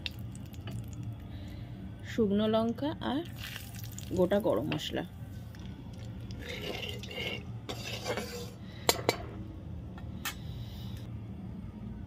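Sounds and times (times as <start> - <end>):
spices sizzling in hot oil: 3.3 - 4.6
spatula scraping a pan: 6.4 - 9.2.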